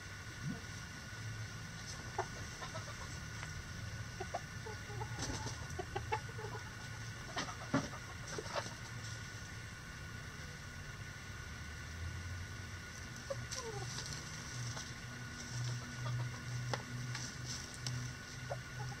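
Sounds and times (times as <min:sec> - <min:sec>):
hens clucking: 0:01.8 - 0:09.6, 0:13.0 - 0:19.0.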